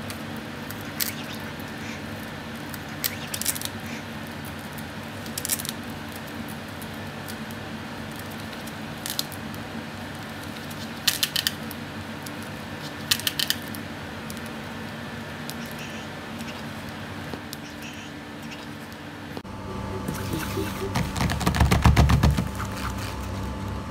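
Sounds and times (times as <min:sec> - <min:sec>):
steady low hum: 0:19.3 - 0:23.9.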